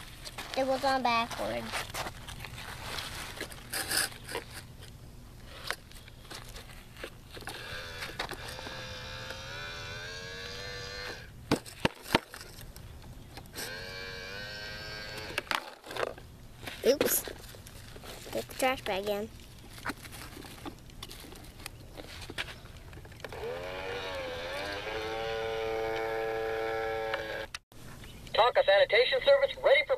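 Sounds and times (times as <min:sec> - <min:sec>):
toy truck motor whining: 0:07.5 - 0:11.3, 0:13.5 - 0:15.5, 0:23.2 - 0:27.6.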